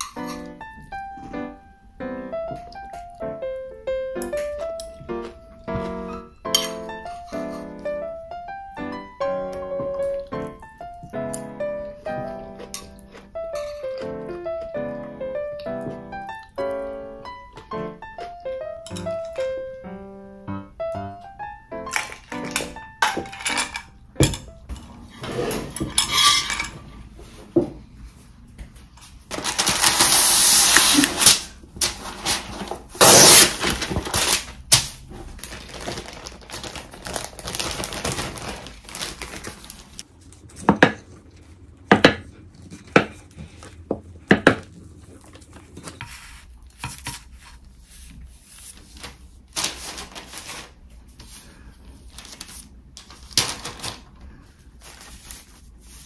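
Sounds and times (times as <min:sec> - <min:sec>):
utensils clinking: 0:06.5 - 0:07.7, 0:18.8 - 0:19.5, 0:21.9 - 0:26.9
plastic bag and paper crinkling: 0:29.3 - 0:40.6, 0:48.4 - 0:56.0.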